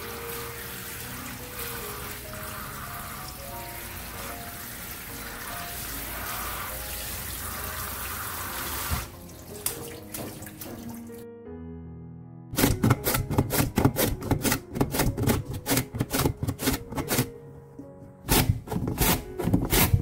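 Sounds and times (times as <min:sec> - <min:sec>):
tap water running into steel bowl: 0:00.0 - 0:11.2
soft background music: 0:00.0 - 0:20.0
radish sliced on a mandoline: 0:12.6 - 0:17.3, 0:18.2 - 0:20.0.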